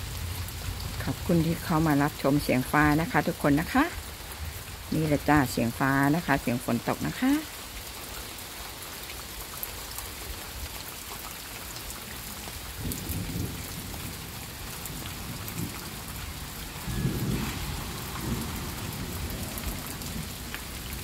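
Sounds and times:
heavy rain falling: 0.0s - 21.0s
thunder rumbling: 12.8s - 21.0s.

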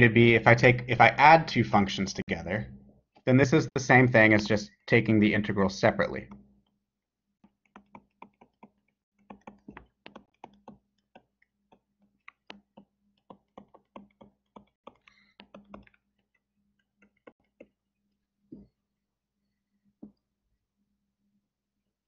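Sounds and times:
stylus tapping on tablet screen: 7.4s - 17.8s.

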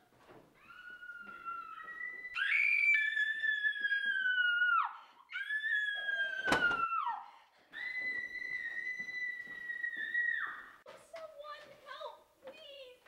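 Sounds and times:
woman screaming: 0.6s - 7.2s.

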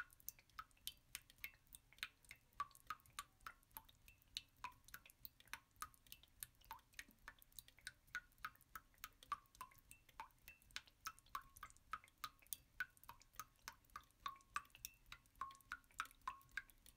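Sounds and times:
water dripping plinks: 0.0s - 16.9s.

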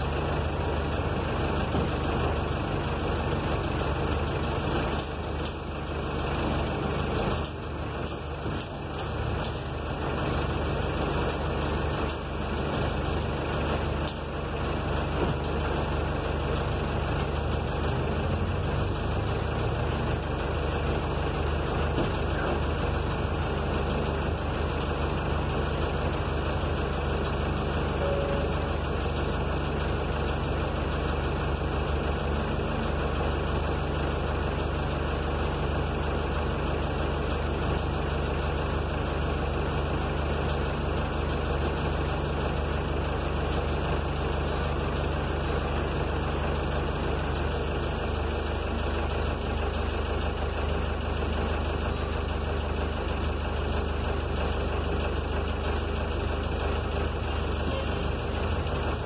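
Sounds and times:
bus diesel engine idling: 0.0s - 59.0s.

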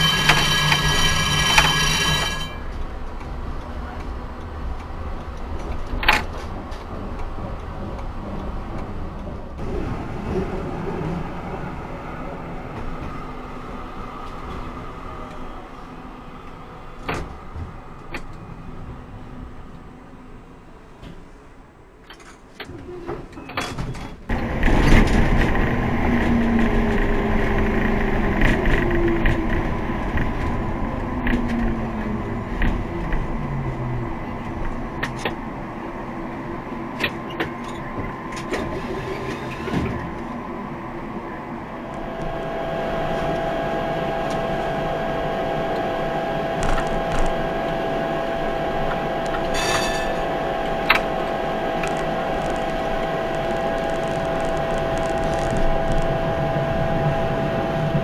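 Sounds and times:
tram rumbling on rails: 0.0s - 58.0s
faint rising and falling whine: 40.0s - 58.0s.

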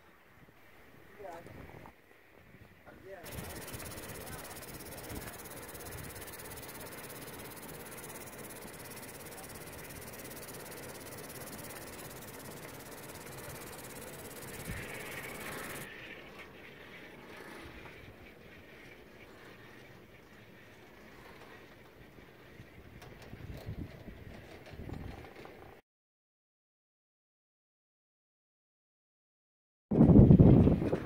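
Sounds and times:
quiet outdoor background: 0.0s - 25.8s
wind on microphone: 1.3s - 6.7s, 22.6s - 25.5s, 29.9s - 31.0s.

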